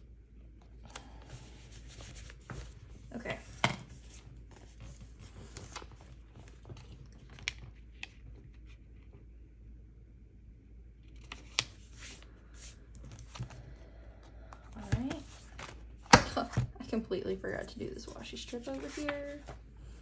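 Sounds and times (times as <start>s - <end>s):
paper and sticker sheets rustling: 0.9s - 8.8s, 11.1s - 13.6s, 14.5s - 16.6s, 17.5s - 19.6s.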